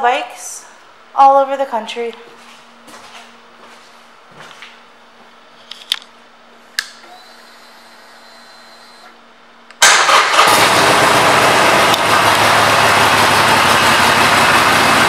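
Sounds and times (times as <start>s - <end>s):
faint high whine: 7.0s - 9.2s
motorcycle engine starting and idling: 9.8s - 15.0s.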